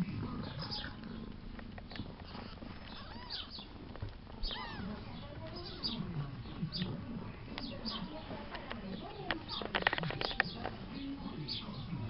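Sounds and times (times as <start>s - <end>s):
kittens mewing: 2.0s - 6.0s.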